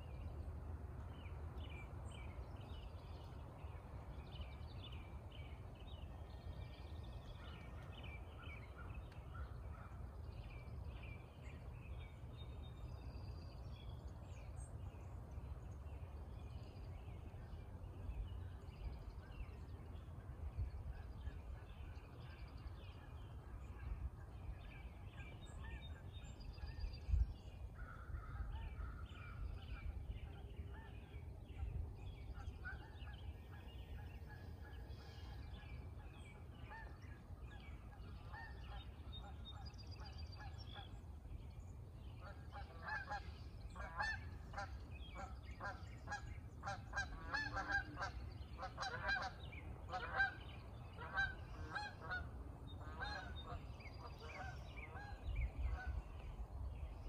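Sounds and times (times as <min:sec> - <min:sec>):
wild birds calling: 0:32.2 - 0:41.2, 0:42.0 - 0:56.4.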